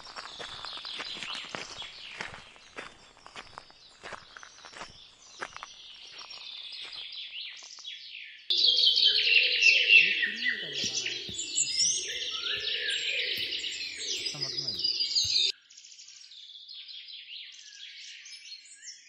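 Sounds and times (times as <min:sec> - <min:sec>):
footsteps on forest floor: 0:00.0 - 0:07.8, 0:08.5 - 0:15.5
birds chirping: 0:00.0 - 0:15.5
dense bird chorus: 0:00.0 - 0:15.5.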